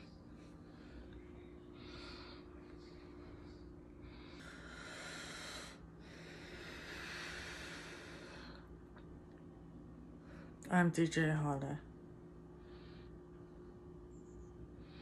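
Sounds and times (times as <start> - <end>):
faint low hum: 0.0 - 15.0
hissing breaths: 1.7 - 8.7.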